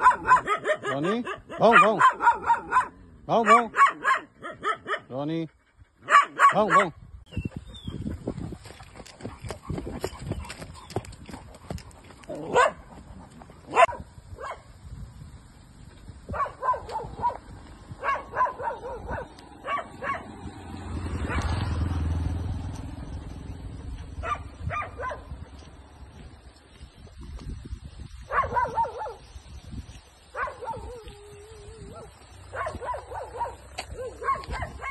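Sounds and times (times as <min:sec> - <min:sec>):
dogs barking: 0:00.0 - 0:05.2, 0:06.0 - 0:07.0, 0:12.2 - 0:14.7, 0:16.3 - 0:21.9, 0:24.1 - 0:25.5, 0:28.3 - 0:29.3, 0:30.3 - 0:34.9.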